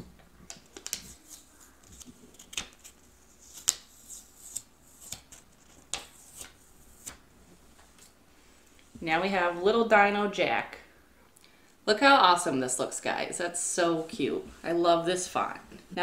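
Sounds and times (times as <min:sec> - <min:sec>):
plastic sheet peeling crinkles: 0:00.5 - 0:07.2.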